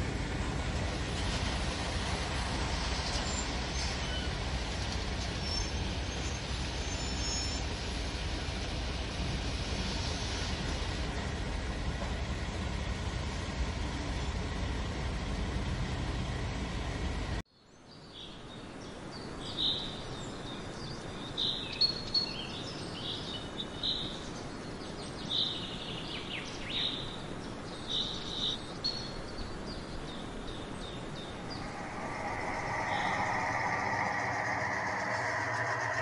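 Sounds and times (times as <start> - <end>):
low train rumble: 0.0 - 17.4, 29.2 - 36.0
outdoor ambient noise: 0.0 - 36.0.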